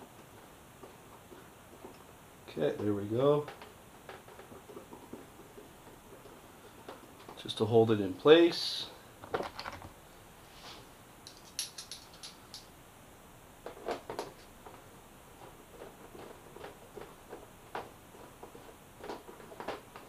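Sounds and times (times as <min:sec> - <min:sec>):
hand tool clicking and rattling: 0:11.2 - 0:12.7.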